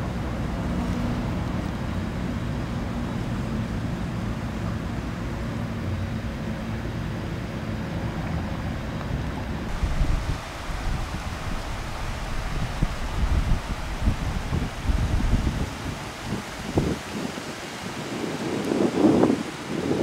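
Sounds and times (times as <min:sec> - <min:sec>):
distant engine drone: 0:00.0 - 0:18.2.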